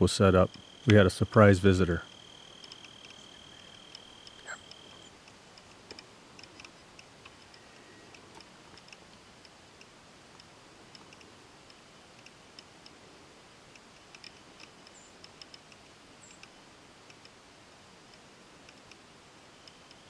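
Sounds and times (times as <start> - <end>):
insects chirping: 0.0 - 5.7
faint outdoor hiss: 0.0 - 20.0
higher chirps: 0.4 - 5.1.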